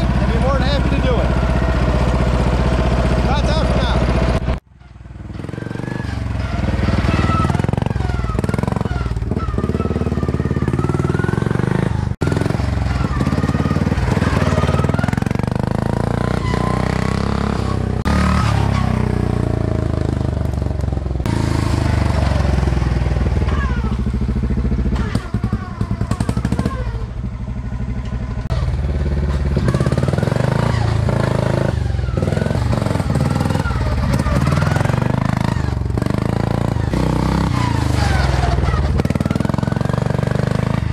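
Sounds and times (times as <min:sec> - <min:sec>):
tractor engine revving under load: 0:00.0 - 0:40.9.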